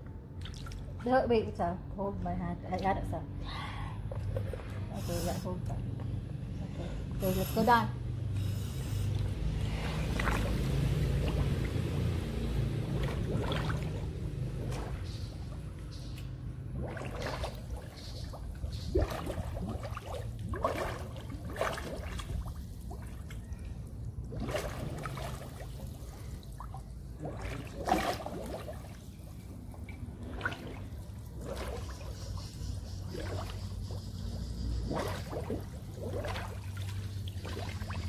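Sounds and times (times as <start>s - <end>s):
low steady hum: 0.0s - 38.0s
underwater bubbling bursts: 8.8s - 38.0s.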